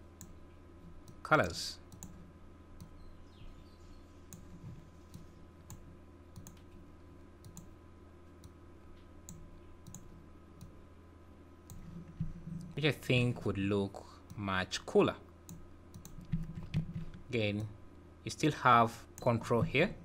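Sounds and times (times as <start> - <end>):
faint steady hum: 0.0 - 20.0
faint computer mouse clicks: 6.4 - 6.7, 8.4 - 10.8.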